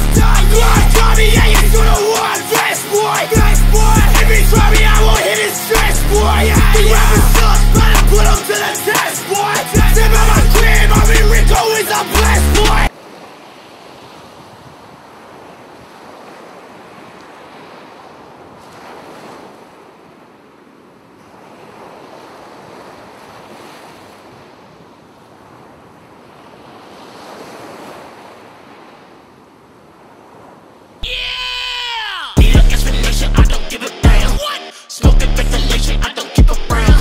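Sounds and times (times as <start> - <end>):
wind: 11.0 - 32.4
sea surf washing up a beach: 12.9 - 30.8.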